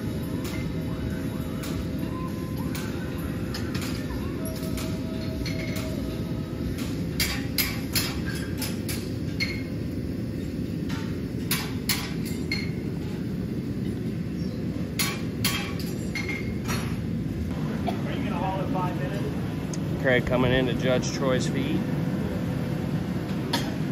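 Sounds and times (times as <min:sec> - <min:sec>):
hammer striking steel: 0:10.9 - 0:12.7, 0:15.0 - 0:16.4.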